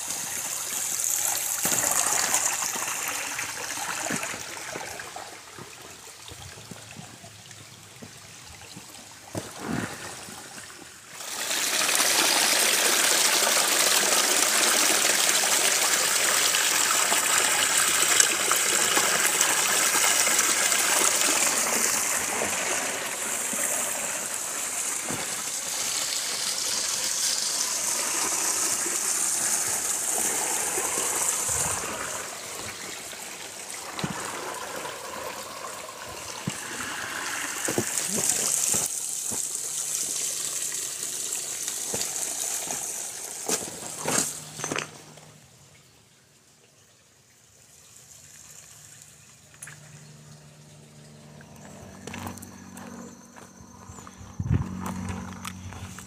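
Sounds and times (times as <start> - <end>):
waterfall splashing over rocks: 0.0 - 5.6, 11.1 - 44.8.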